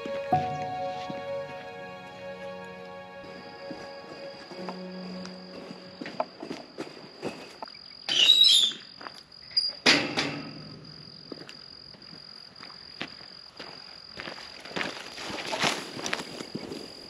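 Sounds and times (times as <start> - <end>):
footsteps: 0.0 - 7.7
insects trilling: 0.0 - 17.0.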